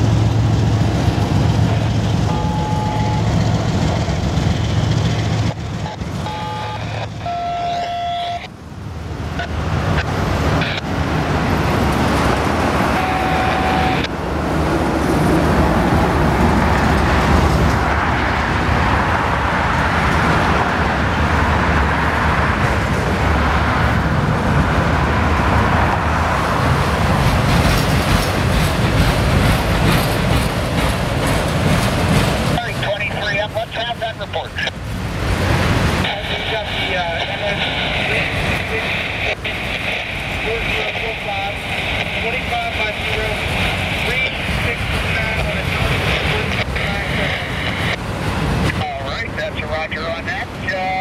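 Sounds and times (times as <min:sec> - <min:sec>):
train wheels clattering on rail: 0:26.6 - 0:32.8.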